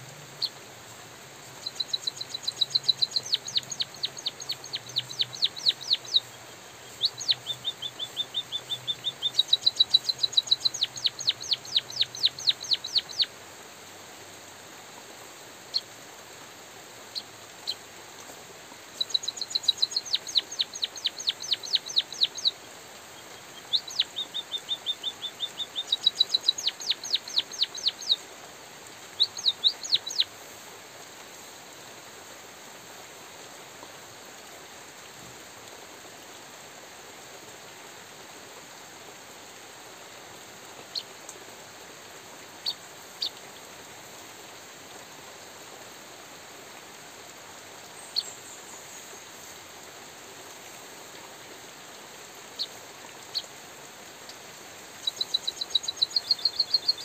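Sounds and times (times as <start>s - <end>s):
light drizzle hiss: 0.0s - 57.0s
bird chirping: 1.6s - 13.3s, 19.0s - 22.6s, 23.2s - 28.2s, 29.1s - 30.3s, 48.0s - 49.1s, 55.0s - 57.0s.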